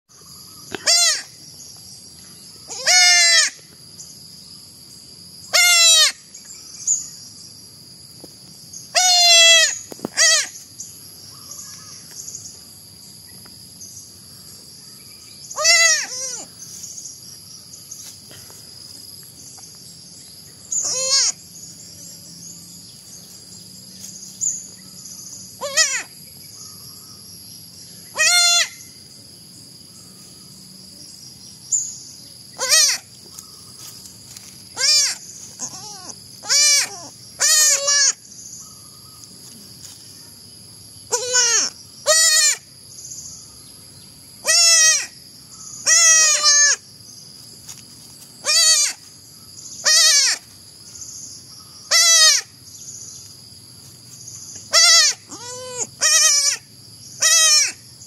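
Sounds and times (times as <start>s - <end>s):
baby goats bleating: 0.7s - 1.3s, 2.7s - 3.6s, 5.5s - 6.2s, 9.0s - 10.6s, 15.6s - 16.5s, 20.8s - 21.4s, 25.6s - 26.1s, 28.2s - 28.8s, 32.6s - 33.0s, 34.8s - 38.2s, 41.1s - 42.6s, 44.5s - 45.1s, 45.9s - 46.8s, 48.4s - 49.0s, 49.8s - 50.4s, 51.9s - 52.4s, 54.7s - 56.6s, 57.2s - 57.8s.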